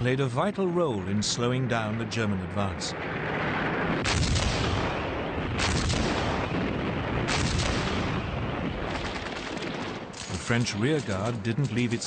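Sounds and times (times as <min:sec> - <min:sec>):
continuous rumble of firing: 0:00.0 - 0:12.0
rapid gunfire bursts: 0:08.8 - 0:12.0.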